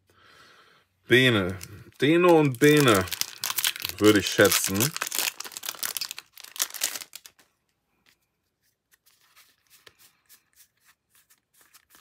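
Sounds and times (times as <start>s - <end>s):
foil wrapper crinkling: 1.3s - 7.4s.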